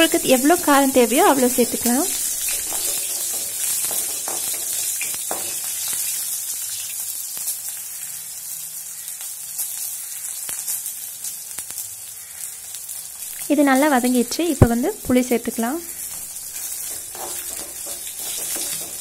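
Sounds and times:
oil sizzling: 0.0 - 19.0
wooden spatula scraping a pan: 0.1 - 5.8, 15.9 - 19.0.

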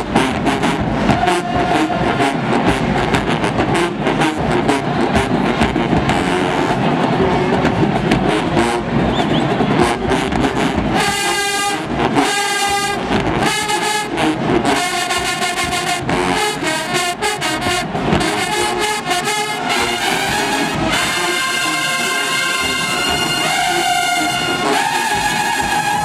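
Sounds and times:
brass blasts: 0.0 - 26.0
marching band playing: 0.0 - 26.0.

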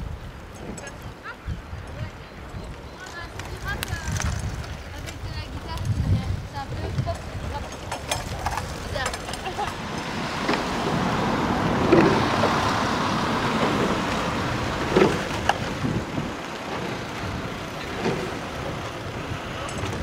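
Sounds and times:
oars splashing through water: 0.0 - 20.0
wind and water noise: 0.0 - 20.0.

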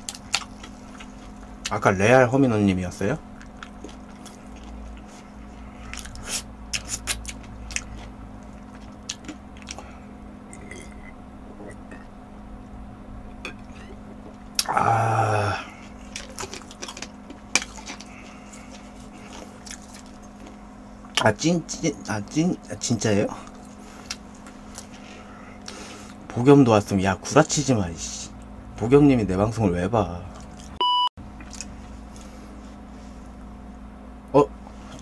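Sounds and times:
loud throaty vocal sound: 14.6 - 15.8.

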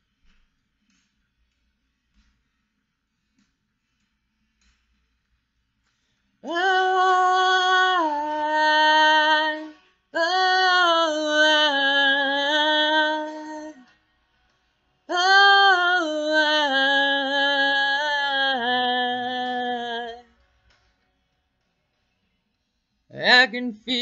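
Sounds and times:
woman singing unaccompanied: 6.4 - 14.0, 15.1 - 20.3, 23.1 - 24.0.

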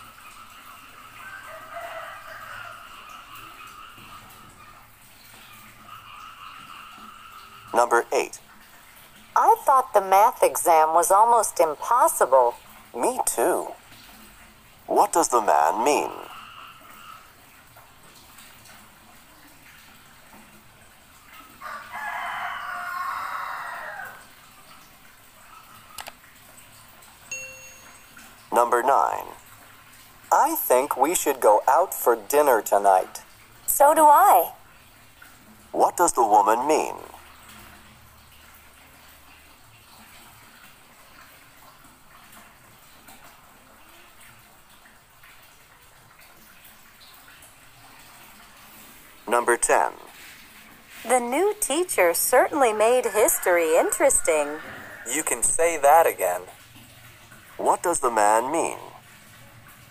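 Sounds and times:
long animal call: 0.2 - 4.8, 5.8 - 7.9, 15.8 - 17.4, 53.0 - 55.3.

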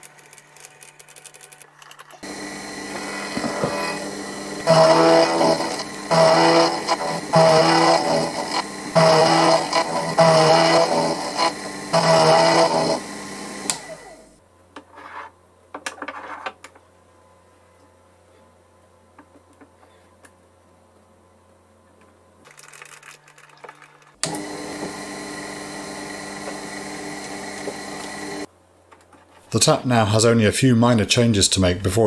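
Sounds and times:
milling machine cutting metal: 2.2 - 14.3.

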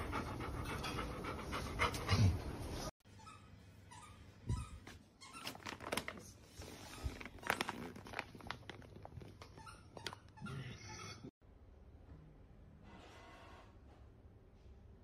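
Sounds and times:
dog food bag crinkling: 5.4 - 9.6.

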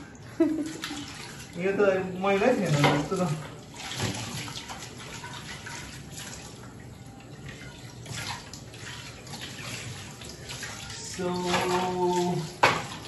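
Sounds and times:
dishes being rinsed: 0.4 - 13.0.

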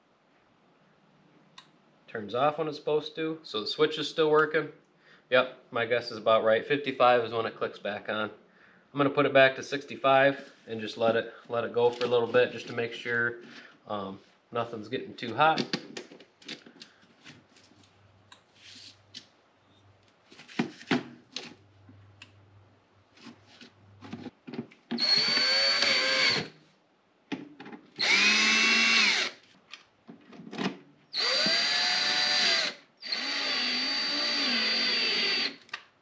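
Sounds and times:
cordless drill driving screws: 25.0 - 26.5, 28.0 - 29.4, 31.1 - 35.8.

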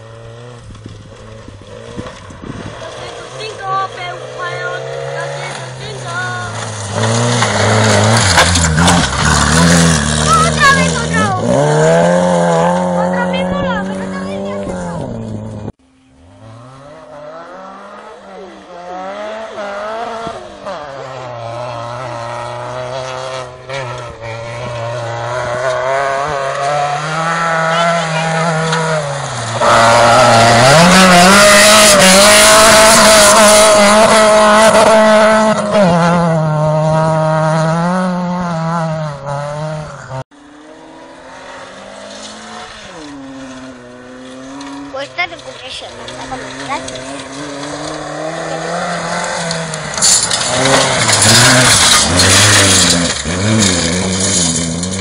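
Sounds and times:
distant rally car: 0.0 - 55.0
rally car engine revving: 0.0 - 55.0.

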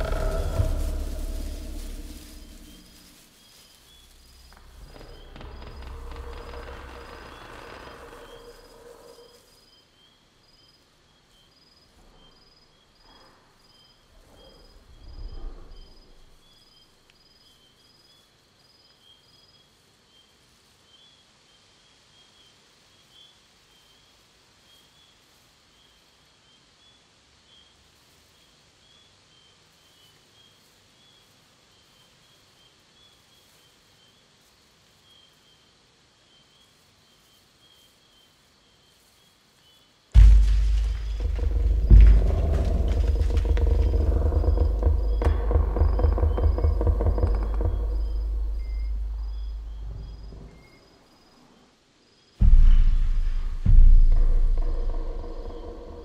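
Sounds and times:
tree creaking rumble: 0.0 - 9.6, 13.2 - 17.0, 40.2 - 51.1, 52.4 - 56.0.

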